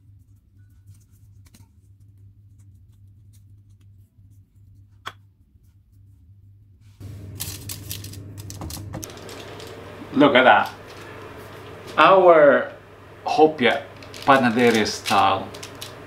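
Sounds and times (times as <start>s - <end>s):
hands shaping dough: 0.0s - 7.0s
low steady hum: 0.0s - 16.0s.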